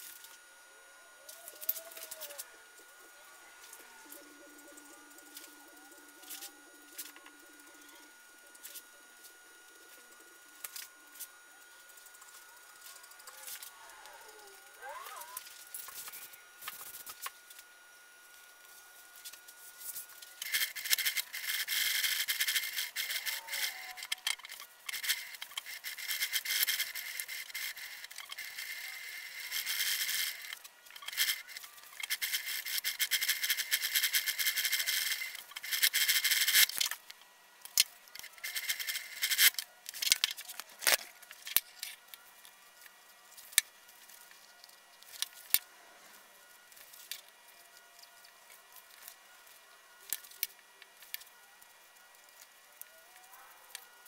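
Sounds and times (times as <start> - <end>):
clicks and handling noise: 1.2 - 13.8, 19.2 - 45.7.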